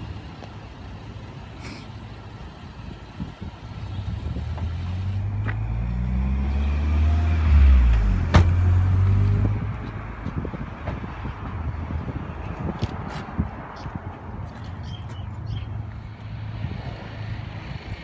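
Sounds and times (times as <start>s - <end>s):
vehicle engine rumble: 0.0s - 18.0s
car door shutting: 8.3s - 8.6s.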